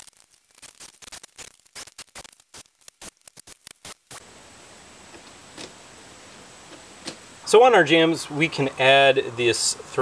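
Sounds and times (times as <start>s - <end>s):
faint hiss: 0.0s - 10.0s.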